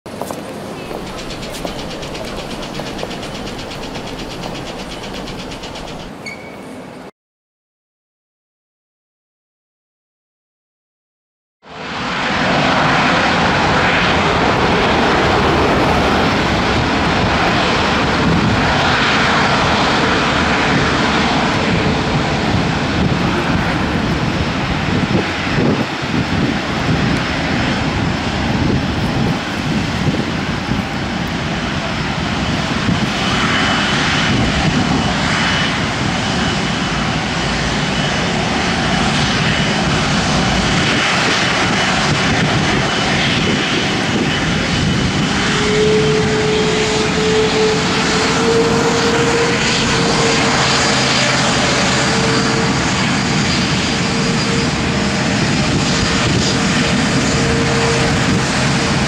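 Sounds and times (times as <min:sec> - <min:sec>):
jet engines rushing: 0:00.1 - 0:06.3, 0:11.7 - 0:59.0
faint high whine: 0:00.7 - 0:06.6.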